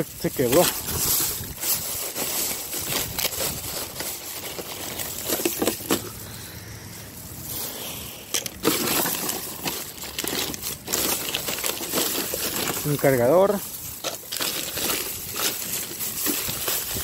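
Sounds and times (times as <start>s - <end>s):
plastic bag rustling: 0.0s - 17.0s
packaging clicks and knocks: 8.4s - 13.2s, 14.0s - 17.0s.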